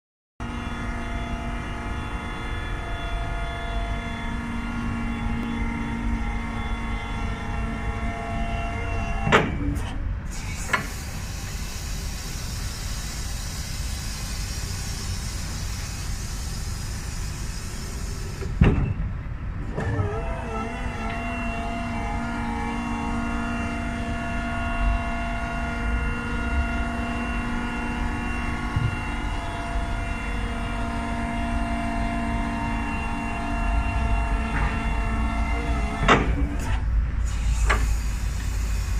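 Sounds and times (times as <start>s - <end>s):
hydraulic pump motor whining: 0.4s - 38.9s
motor cutting out with clunk: 9.2s - 11.6s, 19.6s - 21.3s, 34.4s - 38.9s.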